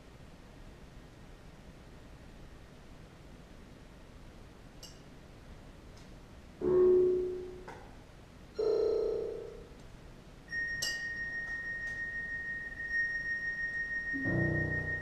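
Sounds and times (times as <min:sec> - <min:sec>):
steady high pure tone: 0:06.6 - 0:07.7, 0:10.5 - 0:15.0
struck pitched notes ringing: 0:06.6 - 0:07.7, 0:10.5 - 0:15.0.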